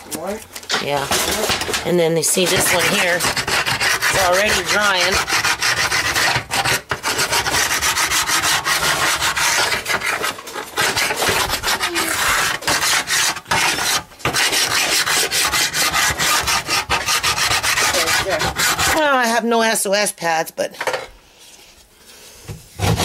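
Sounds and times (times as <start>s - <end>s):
spatula scraping oven grime: 0.7s - 19.1s.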